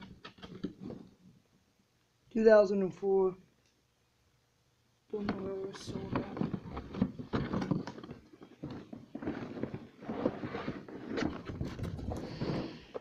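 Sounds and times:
cardboard box being handled: 5.3 - 13.0.

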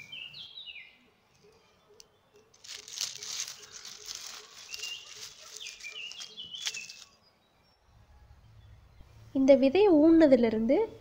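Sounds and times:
bird calling: 0.0 - 7.2
hand rustling dry leaves and soil: 2.5 - 7.2.

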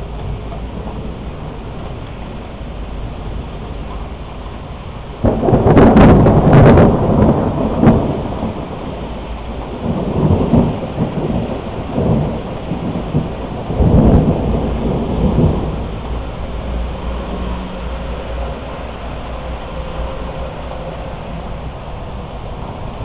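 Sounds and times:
rain falling: 0.0 - 23.0
thunder rumbling: 0.0 - 23.0
loud crackling thunderclap: 5.2 - 18.9.

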